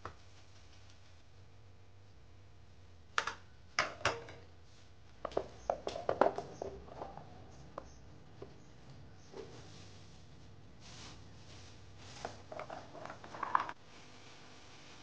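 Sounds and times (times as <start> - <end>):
faint steady hum: 0.0 - 15.0
kitchen utensils clattering: 3.8 - 4.4.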